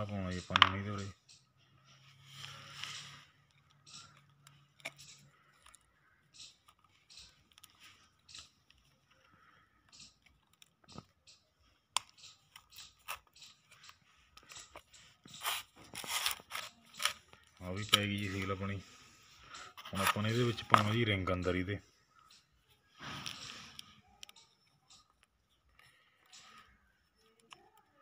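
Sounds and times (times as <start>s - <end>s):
clicks and light scrapes: 0.0s - 28.0s
fingers handling rubber seal: 2.9s - 18.8s, 19.5s - 21.7s.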